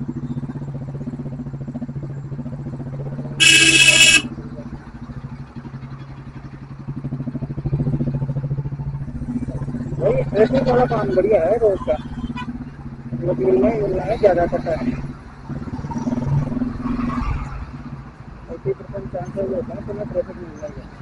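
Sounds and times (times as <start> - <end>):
vehicle horn: 3.4 - 4.3.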